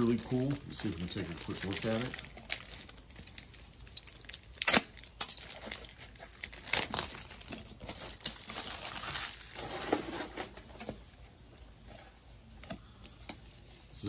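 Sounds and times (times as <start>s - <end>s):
plastic shrink-wrap crinkling: 0.0s - 10.6s
sharp plastic crackles: 0.0s - 10.7s.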